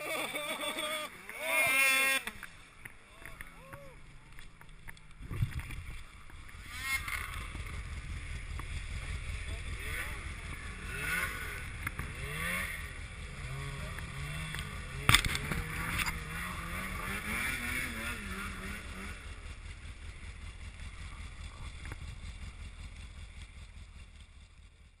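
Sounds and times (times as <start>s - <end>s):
voices: 0.0s - 5.1s, 9.2s - 12.2s, 13.2s - 16.1s
snowmobile engine idling: 0.0s - 25.0s.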